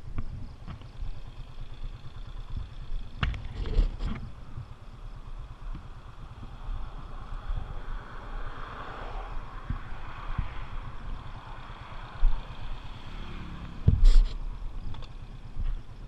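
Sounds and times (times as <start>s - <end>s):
wind rumble on microphone: 0.0s - 16.0s
car passing: 5.1s - 14.8s.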